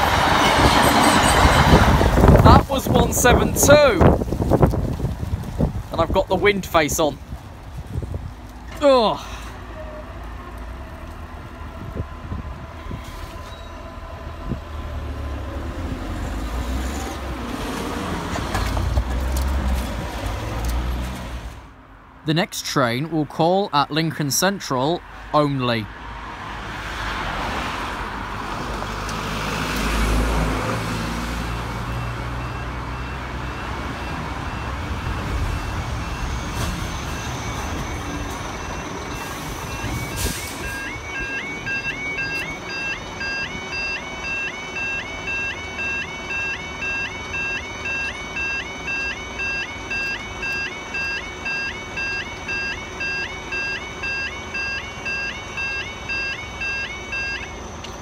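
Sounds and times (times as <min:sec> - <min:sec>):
crossing alarm beeping: 0:00.0 - 0:04.2, 0:31.4 - 0:58.0
rising yodel alarm tone: 0:00.0 - 0:04.2, 0:31.4 - 0:57.9
wind buffeting microphone: 0:00.0 - 0:06.6, 0:07.2 - 0:08.5, 0:11.3 - 0:13.4
low rumble of vehicles: 0:00.0 - 0:58.0.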